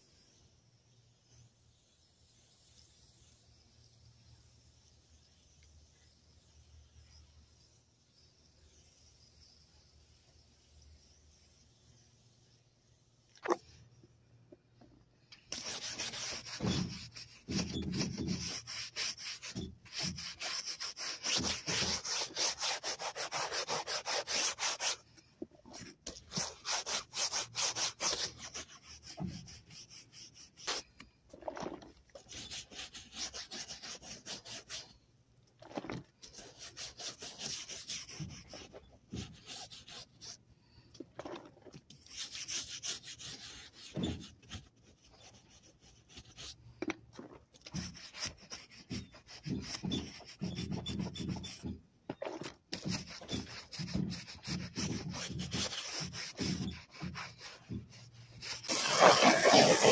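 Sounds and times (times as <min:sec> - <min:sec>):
brush scrubbing cloth upholstery: 0:15.5 - 0:34.9, 0:35.6 - 0:40.4, 0:41.2 - 0:46.6, 0:47.2 - 0:59.9.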